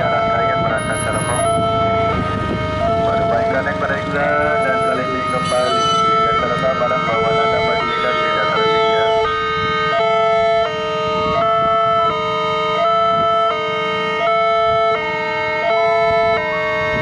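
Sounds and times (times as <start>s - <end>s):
low traffic rumble: 0.0s - 17.0s.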